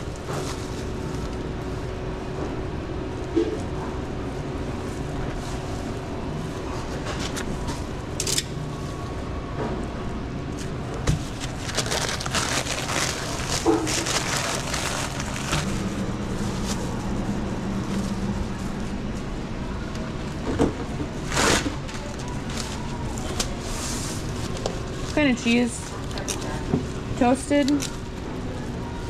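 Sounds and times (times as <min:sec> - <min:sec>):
steady low hum: 0:00.0 - 0:29.0
crinkling wrapper handling: 0:11.3 - 0:17.2.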